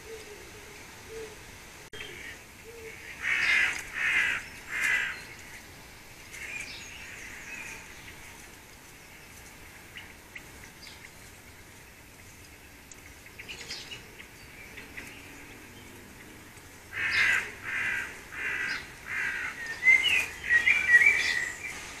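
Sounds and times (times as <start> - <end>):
faint background birdsong: 0.0 - 22.0
harsh caw-like bird calls: 2.0 - 5.4, 16.9 - 21.4
high bird chirping: 18.6 - 21.8.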